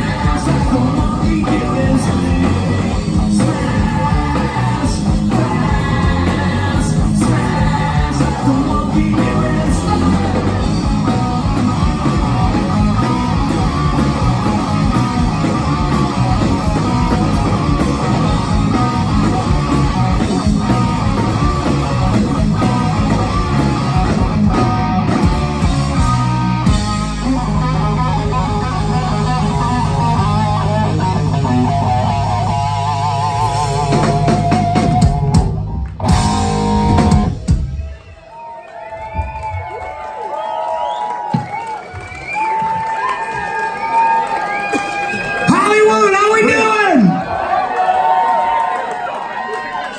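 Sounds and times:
vibrato electric guitar line: 0.0s - 37.8s
rock band playing live: 0.0s - 48.7s.

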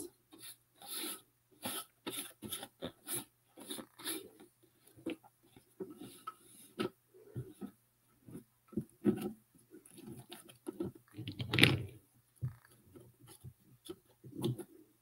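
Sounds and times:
hands rubbing paper on cardboard: 0.3s - 4.3s.

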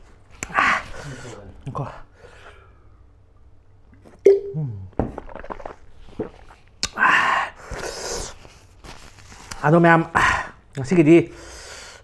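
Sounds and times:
man gulping: 3.9s - 7.1s.

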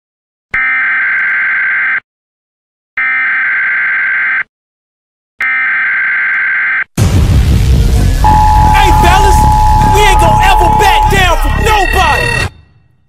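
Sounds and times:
buzzer blasts: 8.3s - 12.6s.

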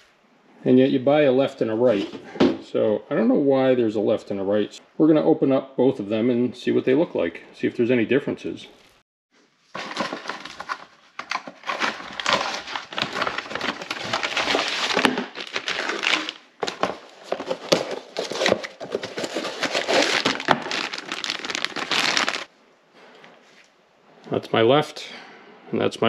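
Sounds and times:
cardboard box being opened: 9.7s - 22.5s
plastic bags crinkling: 9.7s - 22.5s.

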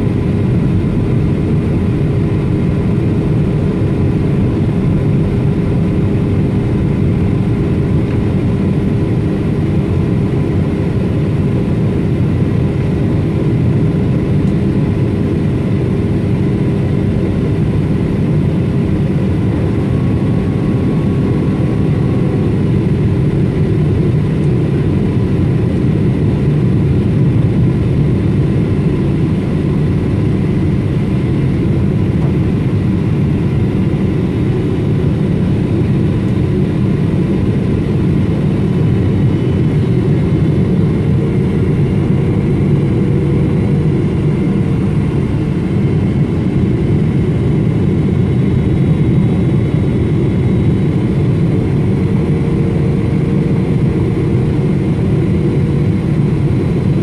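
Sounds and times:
jet engines and airflow rumble: 0.0s - 57.0s.

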